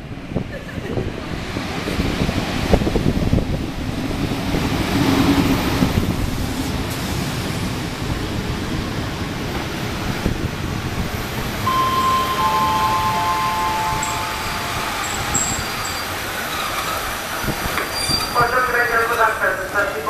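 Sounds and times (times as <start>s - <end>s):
train wheels rumbling on rail: 0.0s - 20.0s
ringing tone: 11.7s - 16.1s.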